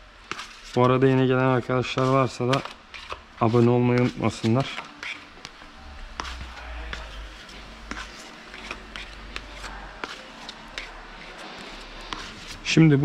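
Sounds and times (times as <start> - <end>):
low hum: 5.4 - 10.0.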